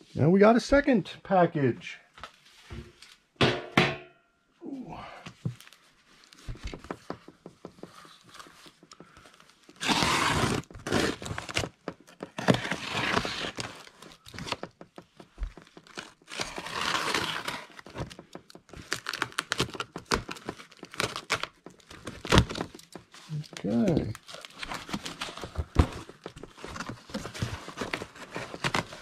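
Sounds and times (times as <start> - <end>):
cardboard crackles and taps: 5.3 - 29.0
packing tape tearing off cardboard: 9.6 - 14.8, 15.4 - 29.0.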